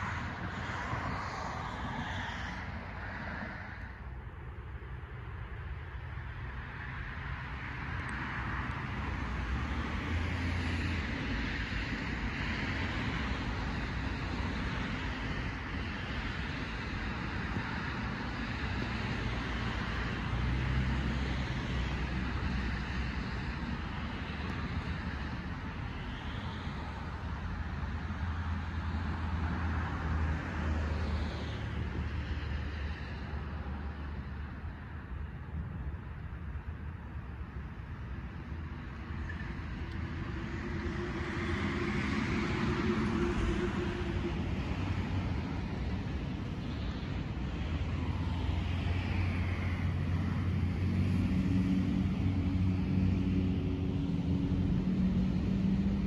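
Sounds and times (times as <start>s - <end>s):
road traffic noise: 0.0s - 56.0s
vehicle passing: 39.7s - 46.6s, 47.9s - 56.0s.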